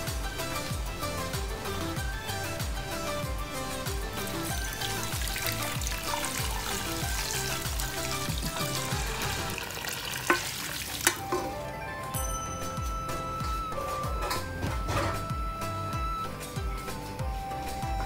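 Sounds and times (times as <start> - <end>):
background music with steady beat: 0.0 - 18.0
stock sizzling in hot pan: 4.2 - 11.6.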